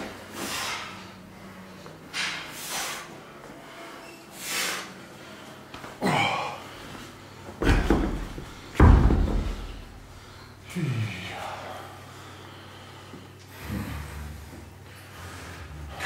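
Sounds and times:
person exhaling and grunting: 6.0s - 6.7s
dumbbells thudding on rubber floor: 7.6s - 9.9s.

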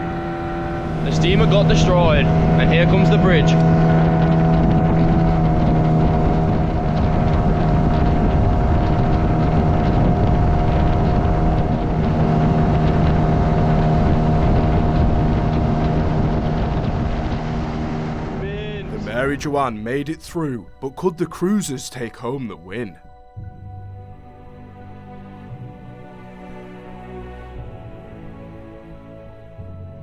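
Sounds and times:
outboard motor running: 0.0s - 19.8s
wind noise: 0.0s - 21.0s.

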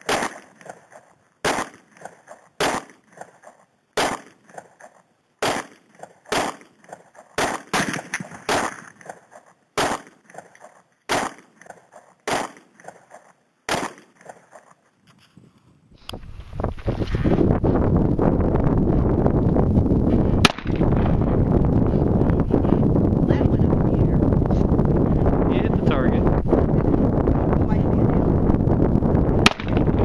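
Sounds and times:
pistol shots with echo: 0.0s - 0.6s, 1.4s - 1.9s, 2.6s - 3.0s, 4.0s - 4.5s, 5.4s - 6.8s, 7.4s - 8.9s, 9.8s - 10.2s, 11.1s - 11.6s, 12.3s - 12.8s, 13.7s - 14.2s, 20.4s - 20.8s, 29.4s - 29.9s.

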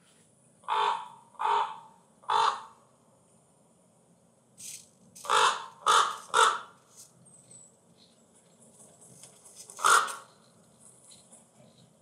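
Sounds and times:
crow caws through small speakers: 0.6s - 2.8s, 5.2s - 6.8s, 9.8s - 10.3s.

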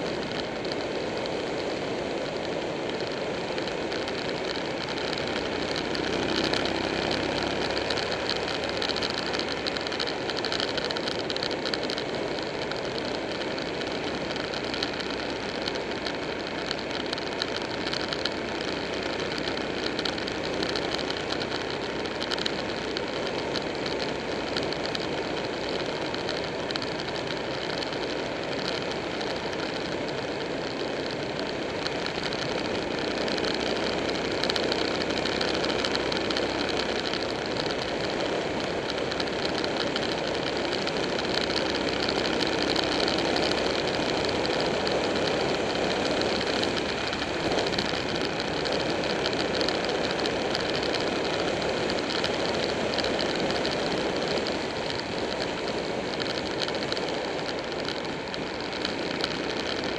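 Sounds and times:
motorcycle engine running: 0.0s - 59.9s
wind and road noise: 0.0s - 59.9s.

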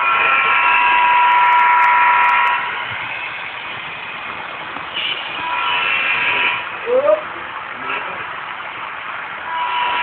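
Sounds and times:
model locomotive horn blast: 0.0s - 2.8s, 5.0s - 6.7s, 9.5s - 10.0s.

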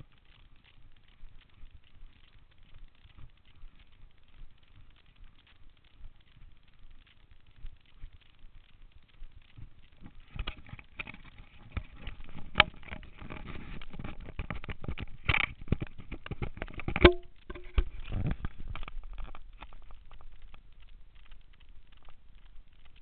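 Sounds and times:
running footsteps on gravel: 0.0s - 11.4s
camera rubbing and knocking: 10.0s - 20.0s.

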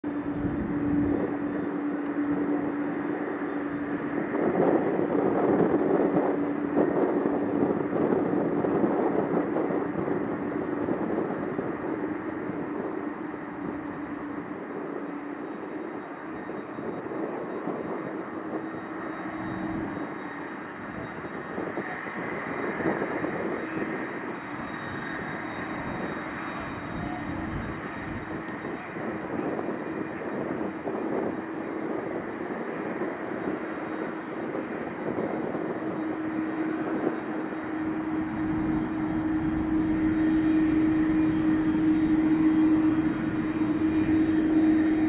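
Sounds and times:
jet engines running: 0.0s - 45.0s.

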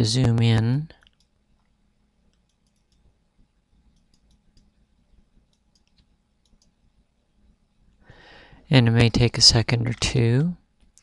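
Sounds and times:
computer mouse clicks: 1.0s - 3.2s, 3.9s - 6.8s.

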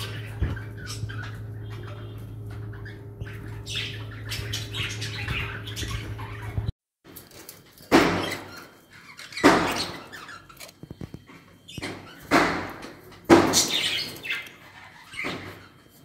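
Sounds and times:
parrots chirping: 0.0s - 6.7s, 7.9s - 16.0s
steady low hum: 0.0s - 6.7s.

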